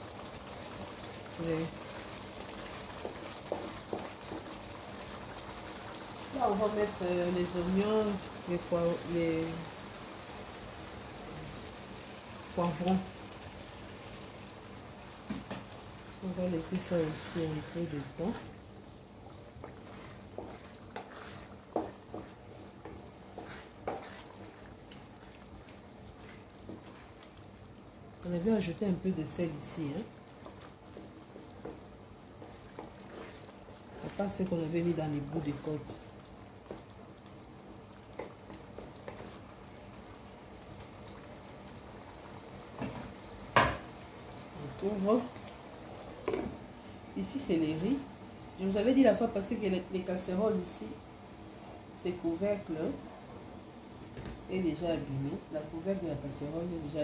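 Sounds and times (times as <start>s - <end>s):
sauce sizzling: 0.0s - 55.1s
wooden spatula scraping pan: 19.6s - 25.1s, 30.5s - 34.4s.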